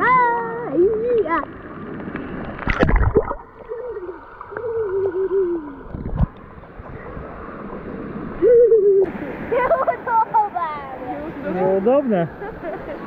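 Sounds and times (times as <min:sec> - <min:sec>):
water splashing at camera: 0:01.0 - 0:07.8.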